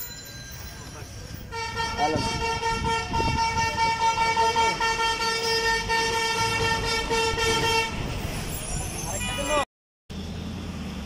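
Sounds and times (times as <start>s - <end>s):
low rumble of street traffic: 0.0s - 11.0s
vehicle horn long honk: 1.5s - 8.0s.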